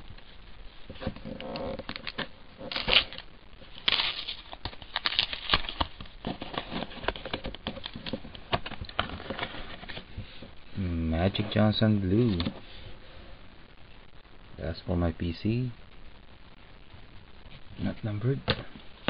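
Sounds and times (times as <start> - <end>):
wrapper crackling and tearing: 1.0 - 10.1.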